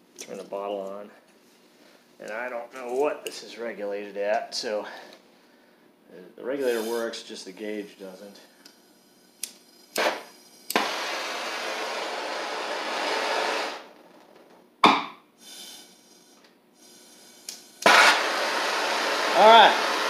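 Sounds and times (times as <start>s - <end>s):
gas torch hissing: 6.6s - 7.2s, 8.6s - 13.9s, 15.4s - 20.0s
torch igniter clicks: 9.4s - 10.9s
sharp pop: 14.8s - 15.2s.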